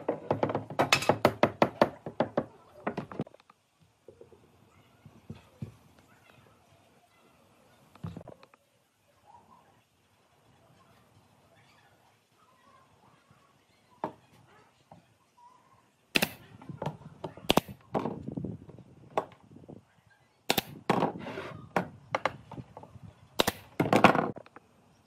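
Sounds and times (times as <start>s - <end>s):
wood scraping on bench: 20.9s - 21.6s.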